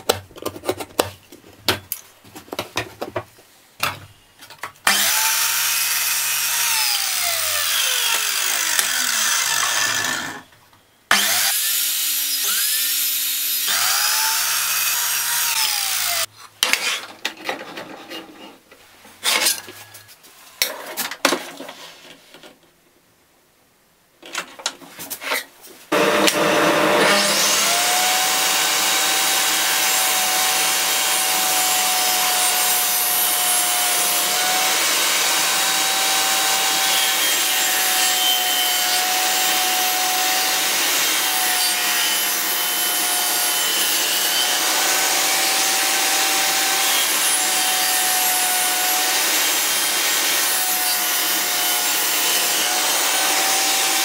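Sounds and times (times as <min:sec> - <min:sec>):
table saw ripping wood: 0:11.1 - 0:17.0, 0:25.9 - 0:54.0.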